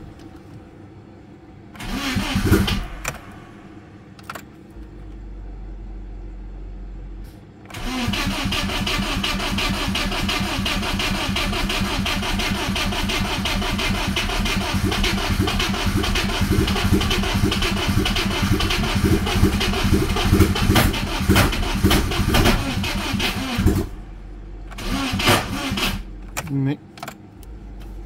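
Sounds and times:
car engine cranking on starter: 1.8s - 3.6s, 7.6s - 26.5s
engine pops: 9.6s - 24.0s.

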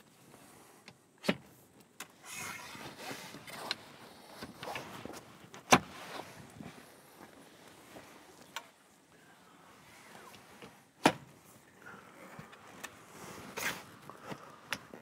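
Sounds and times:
canvas and pole rustling: 2.3s - 8.8s.

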